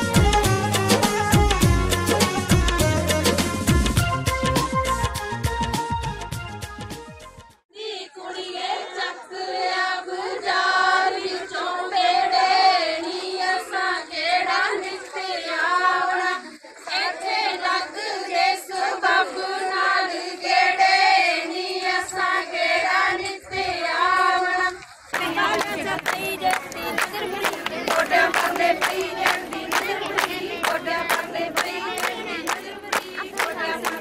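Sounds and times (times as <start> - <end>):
women singing in unison: 7.7 - 34.0.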